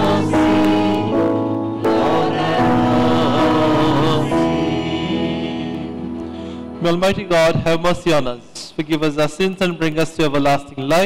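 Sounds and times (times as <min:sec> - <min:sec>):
choir singing a slow chant: 0:00.0 - 0:06.2.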